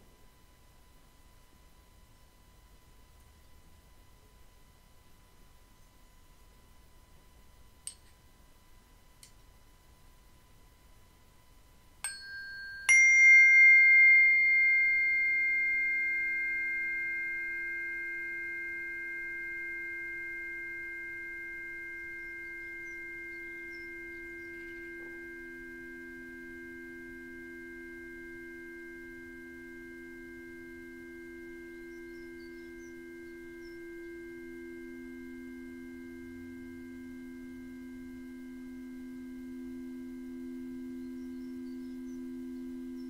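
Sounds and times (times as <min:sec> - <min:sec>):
metal singing bowl strikes ringing: 0:12.0 - 0:30.8.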